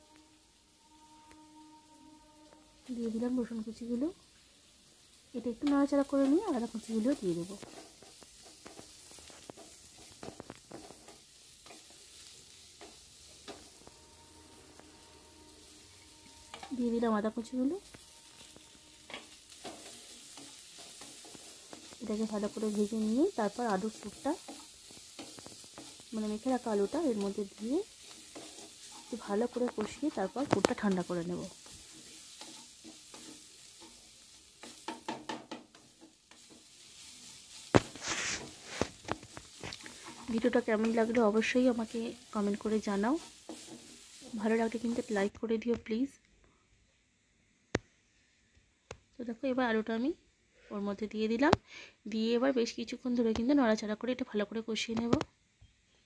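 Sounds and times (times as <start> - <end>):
faint sizzle of frying: 0.0 - 56.0
wooden spatula scraping a pan: 4.9 - 45.3.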